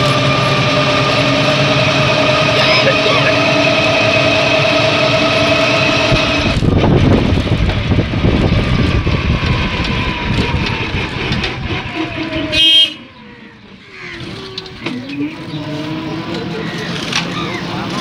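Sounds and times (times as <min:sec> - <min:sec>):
vehicle body rumbling and rattling: 0:00.0 - 0:12.8
motor whine: 0:00.0 - 0:13.6
short horn blast: 0:12.5 - 0:13.1.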